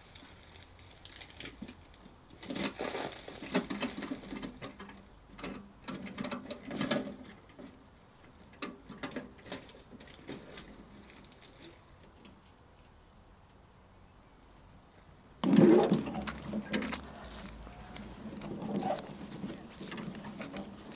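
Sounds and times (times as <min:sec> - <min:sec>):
wood chips clattering out: 0:00.0 - 0:04.8, 0:15.4 - 0:20.9
wheelbarrow knocking: 0:15.4 - 0:20.9.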